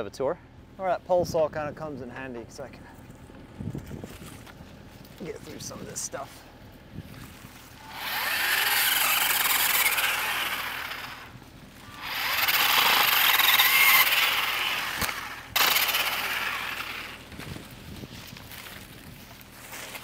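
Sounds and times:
pole saw cutting tree limbs: 7.2 - 20.0.

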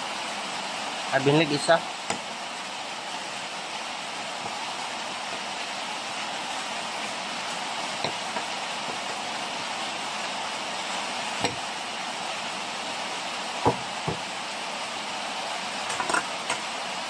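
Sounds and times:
rain hiss: 0.0 - 17.0
cleaver knocking on plate and table: 13.6 - 14.2.

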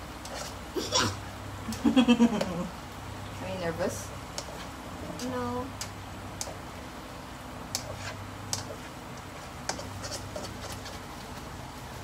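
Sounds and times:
spatula scraping a wok: 0.2 - 0.6, 7.8 - 11.4.

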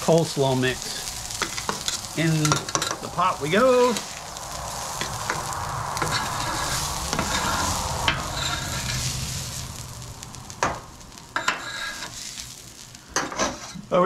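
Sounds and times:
food sizzling on griddle: 0.0 - 14.0
metal spatulas scraping griddle: 11.4 - 12.2, 13.2 - 13.8.

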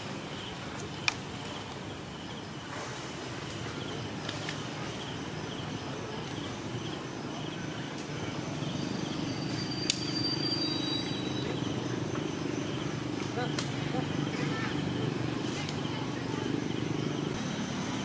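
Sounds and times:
faint high chirp: 7.4 - 12.9
thin high whistle: 9.2 - 11.6.

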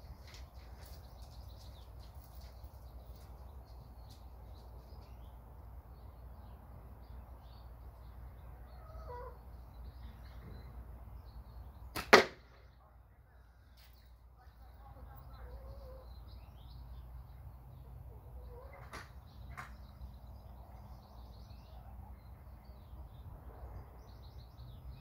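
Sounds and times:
small birds chirping: 0.0 - 25.0
catapult shot crack: 12.0 - 12.5.

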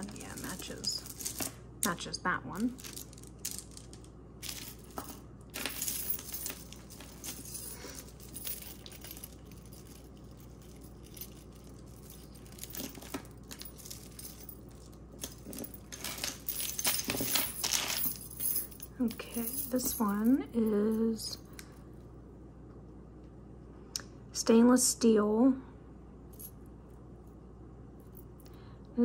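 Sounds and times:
glass beads clinking: 0.0 - 1.6, 2.7 - 21.2.

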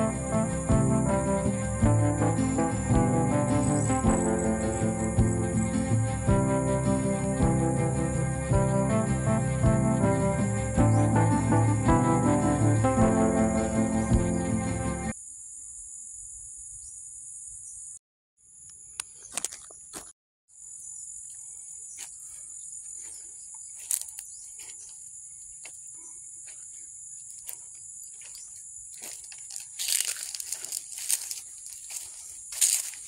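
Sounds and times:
footsteps through dry leaves: 23.8 - 24.9, 27.2 - 33.0.

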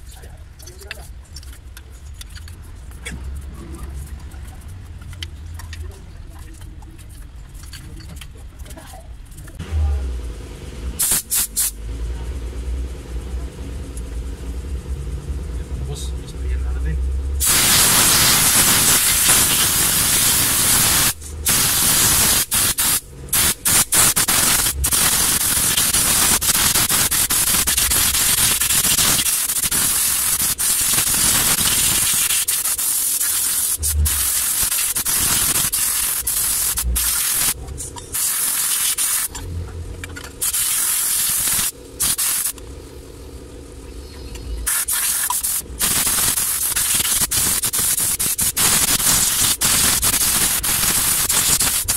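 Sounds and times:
air spray gun hissing: 11.0 - 11.8, 17.4 - 39.3, 40.4 - 42.6, 44.6 - 51.9.

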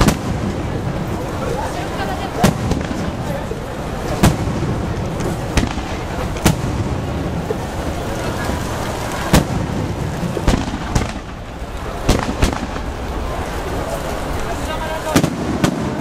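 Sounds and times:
steady background noise: 0.0 - 16.0
firework shells bursting: 4.0 - 7.7, 9.2 - 14.5, 15.1 - 16.0.

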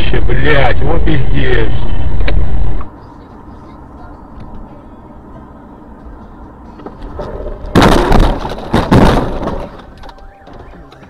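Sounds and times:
engine and road noise: 0.0 - 11.0
car crash impacts: 6.9 - 10.8
car alarm: 10.0 - 11.0.

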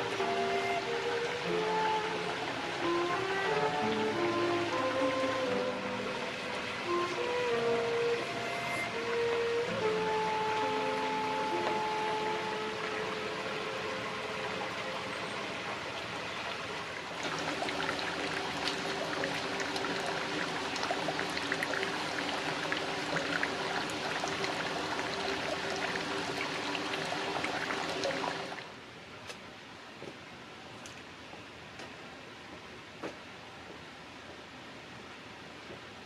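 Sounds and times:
water pouring and splashing: 0.0 - 28.7.

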